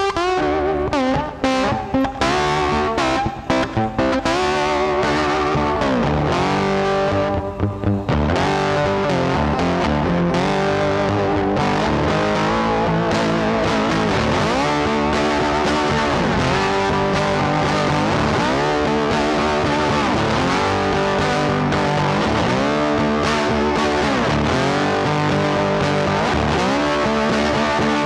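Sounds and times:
distorted electric guitar music: 0.0s - 28.0s.

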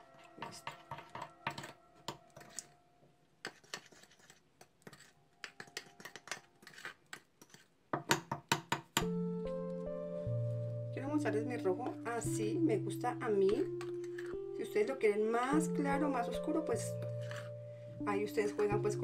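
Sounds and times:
spoon scraping ceramic bowl: 0.0s - 2.8s, 3.4s - 7.7s, 13.5s - 14.5s, 16.8s - 17.6s.

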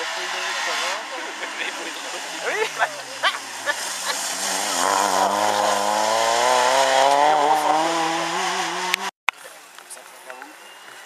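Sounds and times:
car engine accelerating hard: 0.0s - 9.1s.

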